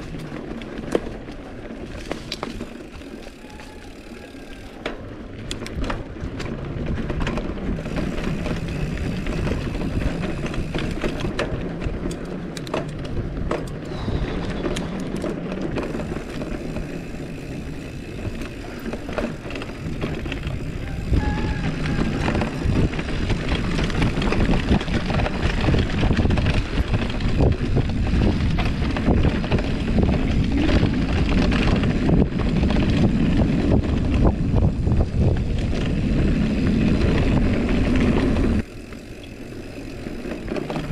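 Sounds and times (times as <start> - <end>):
bike rattling over bumps: 0.0 - 40.9
bike tyres rumbling over gravel: 0.0 - 40.9.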